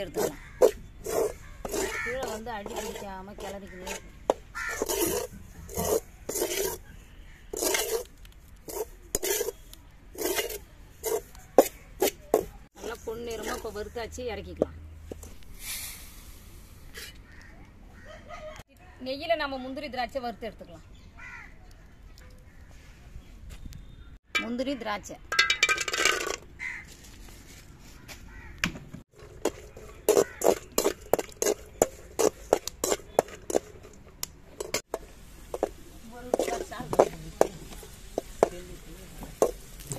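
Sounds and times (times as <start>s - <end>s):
metal spatula scraping a pan: 0.0s - 13.8s, 16.9s - 17.2s, 29.2s - 34.0s, 34.6s - 38.6s
crow cawing: 1.6s - 2.4s, 3.7s - 4.9s, 21.2s - 21.6s, 26.6s - 27.0s, 28.0s - 28.7s
ladle scraping bread crumbs in pan: 4.8s - 6.8s, 7.5s - 11.3s.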